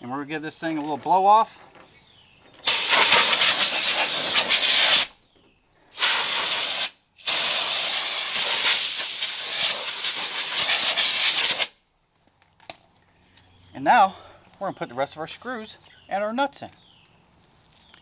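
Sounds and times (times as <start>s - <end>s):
compressed air blowgun blasting: 2.6s - 5.1s, 6.0s - 11.7s.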